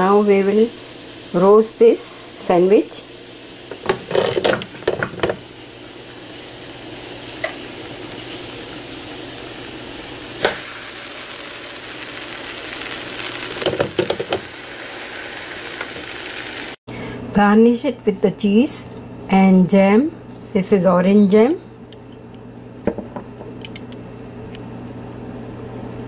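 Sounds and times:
sandwich grill sizzling: 0:00.0 - 0:16.8
grill lid clattering: 0:03.7 - 0:05.4
sandwich knocking on grill plate: 0:13.6 - 0:14.4.

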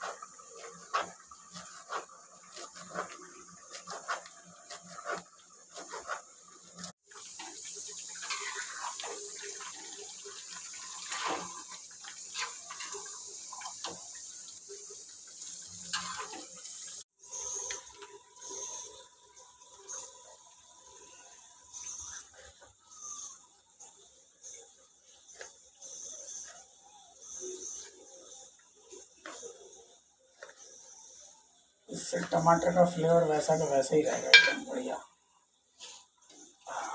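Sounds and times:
spatula stirring and scraping: 0:00.0 - 0:14.1
curry simmering with hiss: 0:00.0 - 0:36.9.

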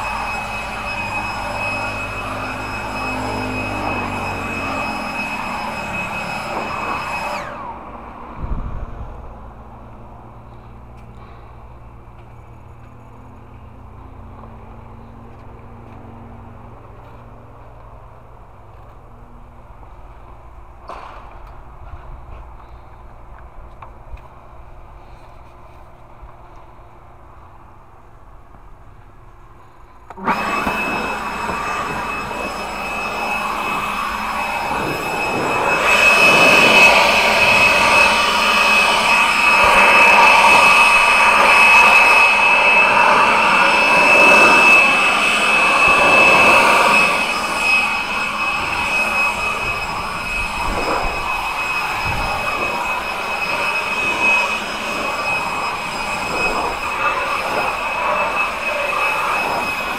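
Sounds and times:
machine running with high whine: 0:00.0 - 0:21.0, 0:29.6 - 0:59.9.

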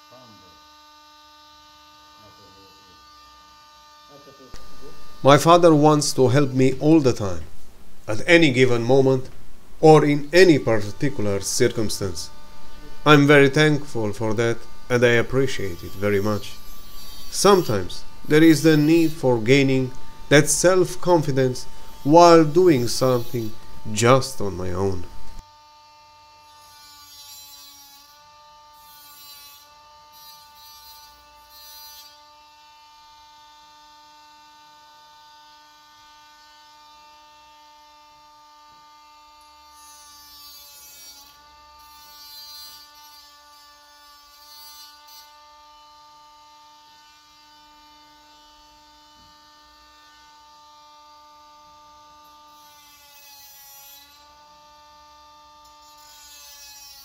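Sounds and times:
hot stapler gun humming: 0:04.5 - 0:05.2.

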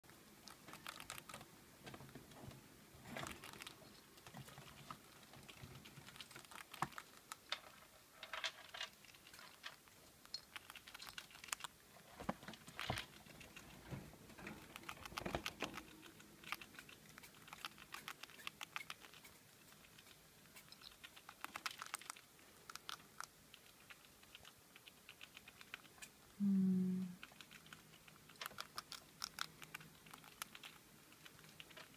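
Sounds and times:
rats crunching pellets: 0:00.4 - 0:26.2, 0:27.2 - 0:31.9.

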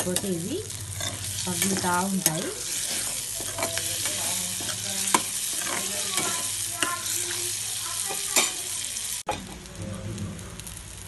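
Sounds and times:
meat sizzling in oil: 0:00.0 - 0:11.0
metal spatula scraping: 0:00.9 - 0:08.6.

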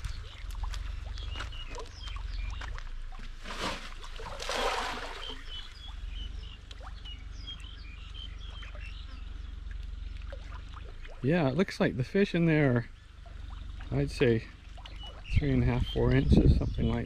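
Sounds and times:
small plops: 0:00.0 - 0:05.6
fish splashing and slurping: 0:00.0 - 0:16.1.

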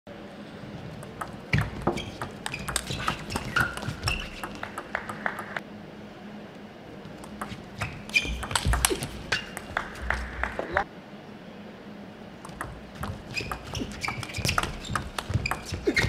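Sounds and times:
table tennis ball clicking: 0:01.0 - 0:05.6, 0:07.2 - 0:10.6, 0:12.4 - 0:15.8
short high squeaks: 0:01.5 - 0:04.6, 0:07.8 - 0:09.7, 0:13.0 - 0:16.0.

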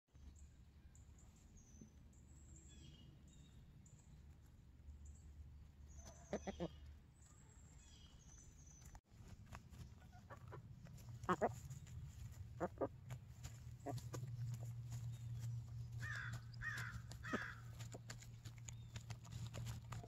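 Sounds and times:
wild birds chirping: 0:00.1 - 0:09.0, 0:09.9 - 0:20.0
hens clucking: 0:06.0 - 0:06.9, 0:09.8 - 0:14.9, 0:15.9 - 0:20.0
steady low rumble: 0:10.4 - 0:20.0.

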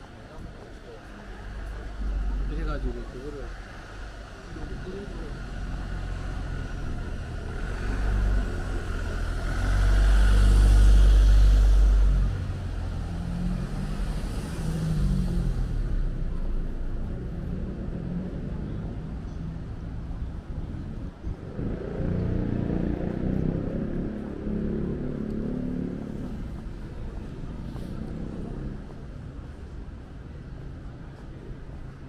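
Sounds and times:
traffic noise: 0:00.0 - 0:32.0
car passing by: 0:01.4 - 0:19.1.

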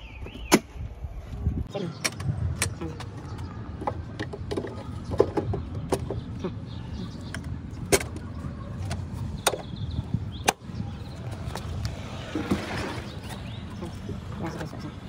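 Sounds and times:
metal latch clicks and clunks: 0:02.0 - 0:06.4, 0:07.1 - 0:09.8.

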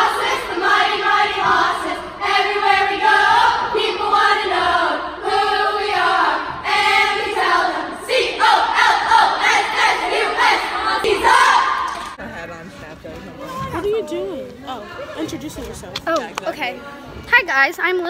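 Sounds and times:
girls chanting in unison: 0:00.0 - 0:11.9.

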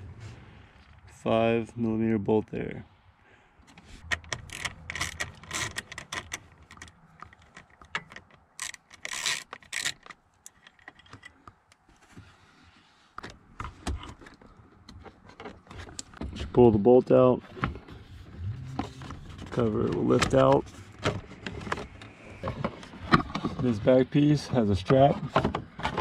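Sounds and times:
socket wrench clicking and rattling: 0:04.0 - 0:11.8.

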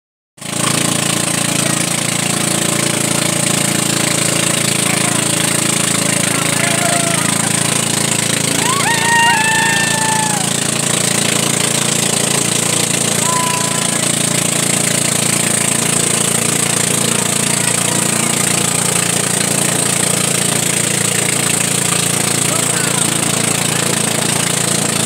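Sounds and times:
boat engine running: 0:00.4 - 0:25.0
person shouting: 0:06.4 - 0:07.6, 0:08.6 - 0:10.6, 0:13.2 - 0:14.1.

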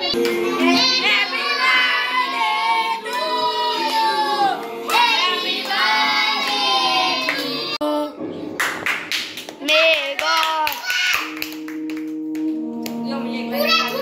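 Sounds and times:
children singing: 0:00.0 - 0:07.8
background music: 0:00.0 - 0:09.7, 0:10.8 - 0:14.0.

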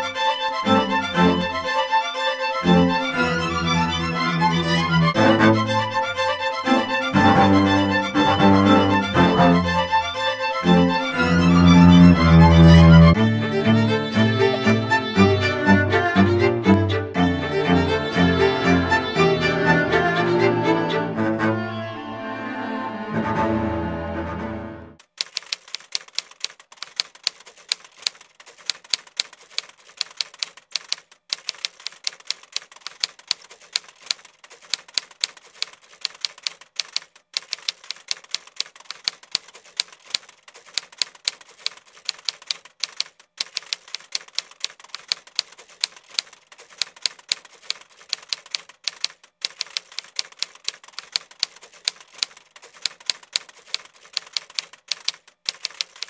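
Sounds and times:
typewriter keys clacking: 0:25.0 - 0:56.0.

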